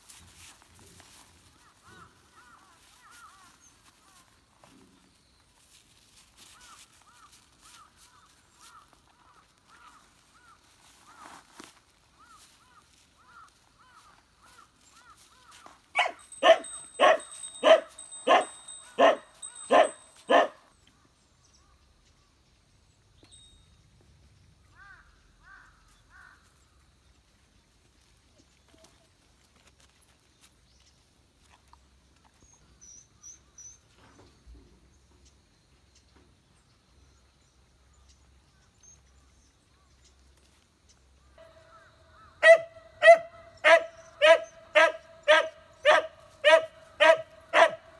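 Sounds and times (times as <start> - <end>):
dog barking: 16.0 - 20.6, 42.4 - 47.9.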